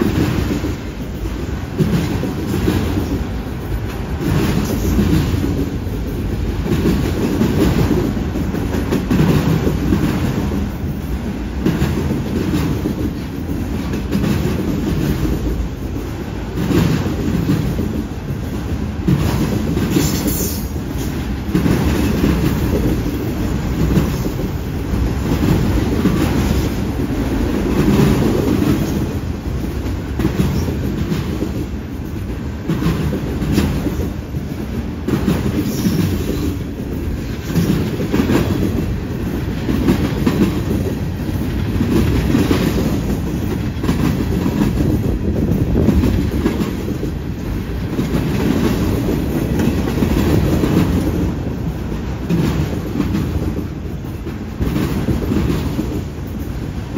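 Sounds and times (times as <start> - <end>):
train wheels rumbling on rail: 0.0 - 56.9.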